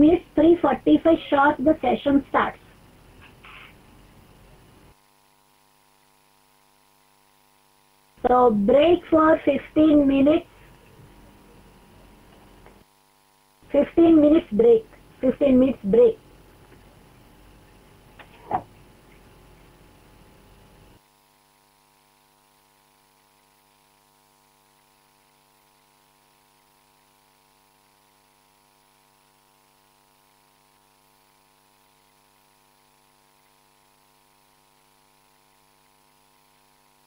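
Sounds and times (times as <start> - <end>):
faint hiss: 0.0 - 5.1
electrical mains hum: 0.0 - 37.0.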